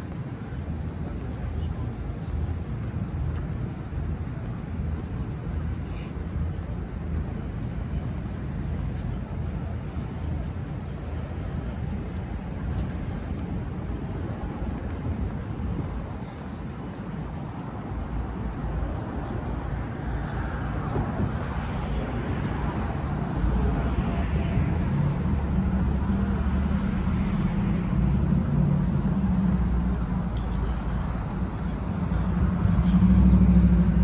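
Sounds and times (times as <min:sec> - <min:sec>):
city street traffic: 0:00.0 - 0:34.0
vehicle engine rumble: 0:00.0 - 0:34.0.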